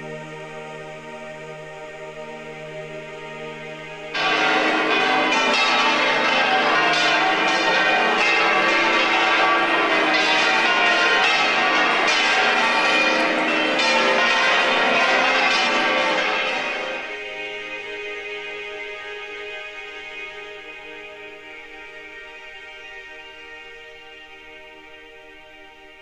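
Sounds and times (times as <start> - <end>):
church bells pealing: 4.1 - 23.2.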